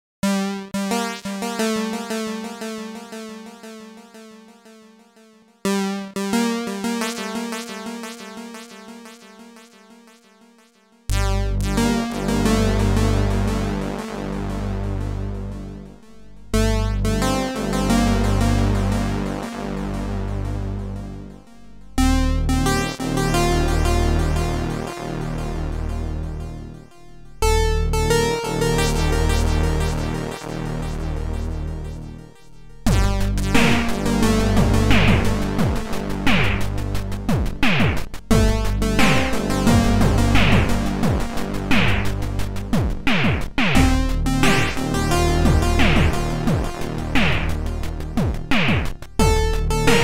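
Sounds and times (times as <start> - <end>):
repeating synth note pattern: 0.2 - 50.0
heavy pulsing bass: 11.1 - 50.0.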